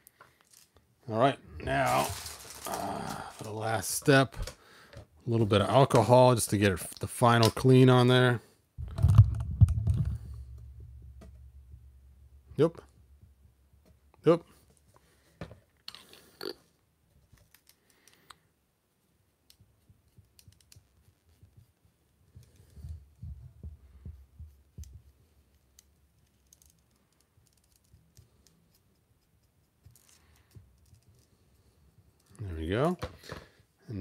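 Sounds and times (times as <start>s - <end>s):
plastic figure clicking and rubbing: 8.8s - 11.4s, 17.2s - 18.4s, 19.4s - 23.2s, 24.4s - 32.4s
low handling bumps: 8.8s - 13.5s.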